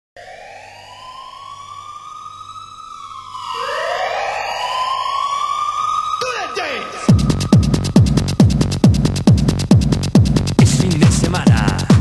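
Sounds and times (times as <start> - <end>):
synthesized rising sweeps: 0.2 - 9.1.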